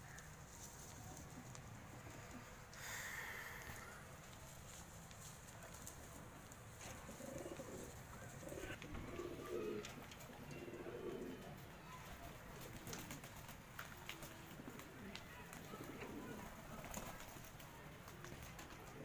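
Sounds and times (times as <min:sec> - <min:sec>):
pigeons cooing: 0:06.9 - 0:11.6, 0:14.5 - 0:16.9.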